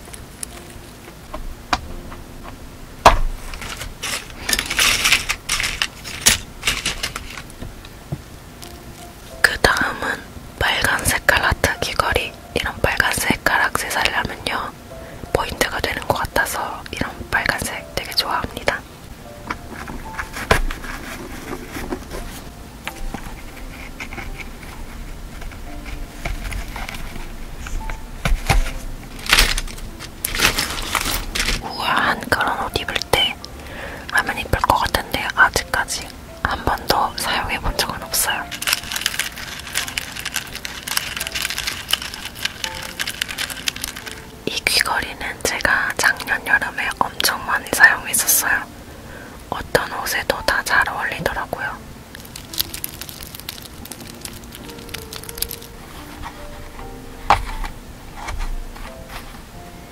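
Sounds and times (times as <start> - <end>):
rustling: 3.3 - 7.9, 19.5 - 31.8, 36.9 - 44.7, 52.1 - 59.6
metal earrings clicking and jingling: 38.5 - 44.3, 52.2 - 55.7.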